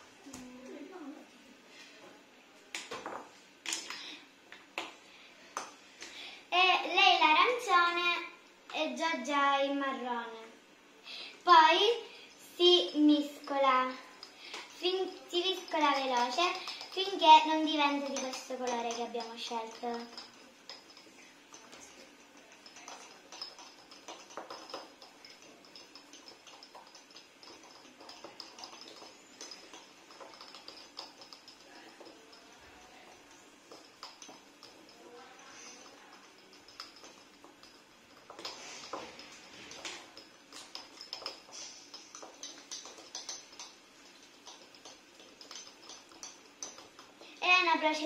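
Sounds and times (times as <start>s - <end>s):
marker tips scraping salt in jars: 13.0s - 48.0s.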